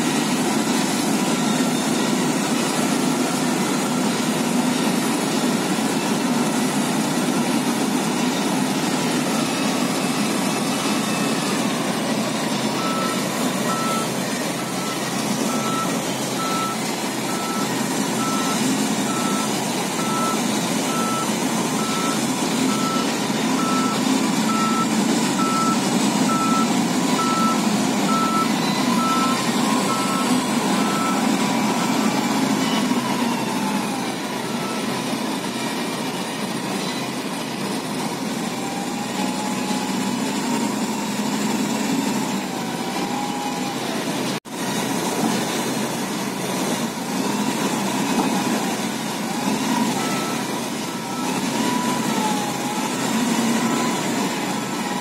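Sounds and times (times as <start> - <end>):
reversing alarm beeping: 0.0 - 35.4, 47.2 - 55.0
diesel engines running: 0.0 - 55.0.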